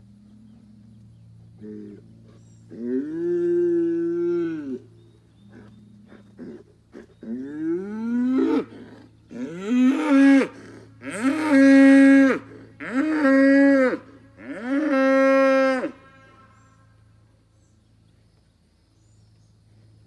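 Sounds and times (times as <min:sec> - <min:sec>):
bull bellowing: 0:01.6 - 0:17.0.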